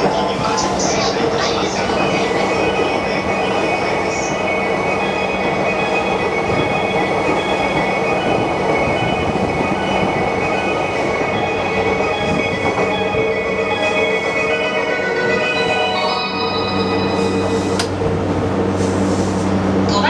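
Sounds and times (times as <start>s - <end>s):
wheels rumbling on rail: 0.0s - 20.0s.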